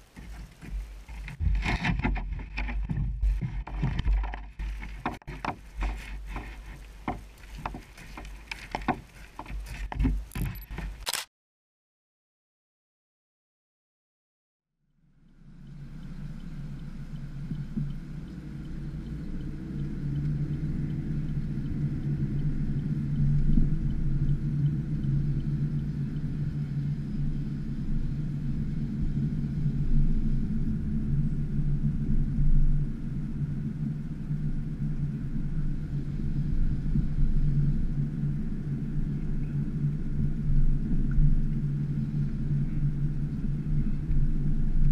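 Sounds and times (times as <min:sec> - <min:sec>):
car engine and road drone: 0:15.0 - 0:44.9.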